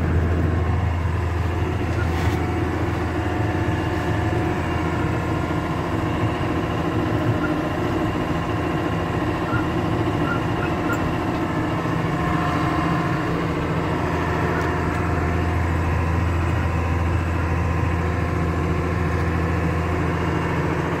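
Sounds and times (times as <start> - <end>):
tractor engine droning: 0.0 - 21.0.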